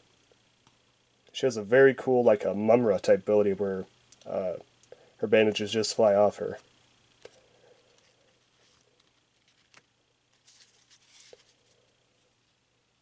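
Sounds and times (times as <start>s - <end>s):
trading cards rustling: 7.8s - 11.9s.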